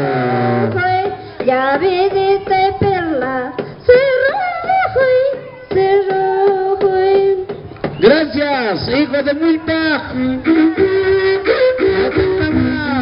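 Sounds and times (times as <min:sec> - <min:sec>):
steady drum beat: 0:00.0 - 0:13.0
women singing high-pitched: 0:00.2 - 0:07.5, 0:10.2 - 0:13.0.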